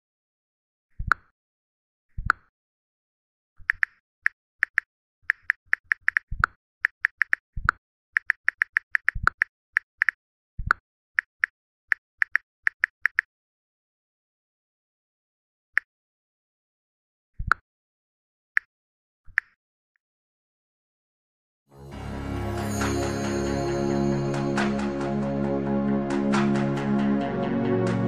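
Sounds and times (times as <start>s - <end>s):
phone keyboard clicks: 4.6s - 11.3s, 12.2s - 13.3s.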